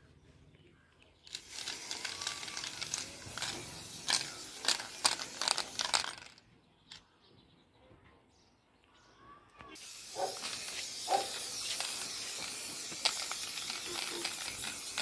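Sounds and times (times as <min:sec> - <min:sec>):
spray can hissing: 0:01.3 - 0:06.4, 0:09.8 - 0:15.0.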